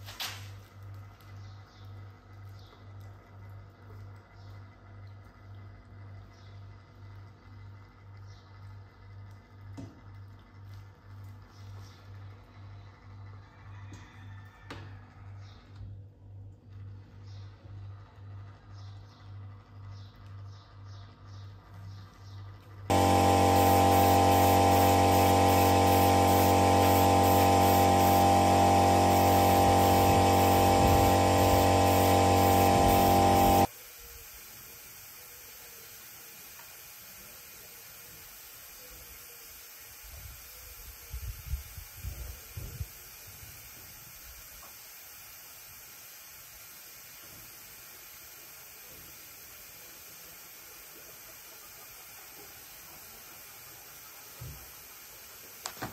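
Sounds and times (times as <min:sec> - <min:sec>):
motor hum: 0:16.4 - 0:33.7
paint spray gun hissing: 0:22.9 - 0:55.9
faint steady hiss: 0:33.4 - 0:55.9.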